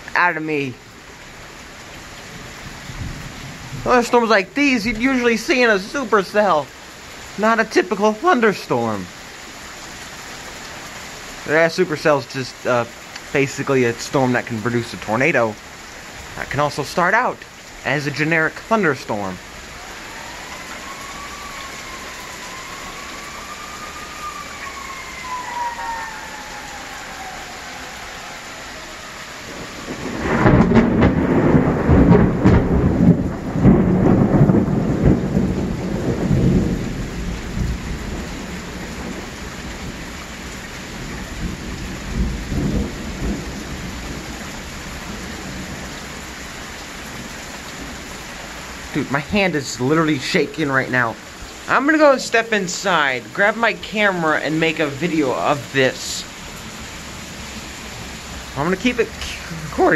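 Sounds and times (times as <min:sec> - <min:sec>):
heavy rain hissing: 0:00.0 - 0:59.9
thunder clap and rumble: 0:02.3 - 0:06.2, 0:29.4 - 0:48.1.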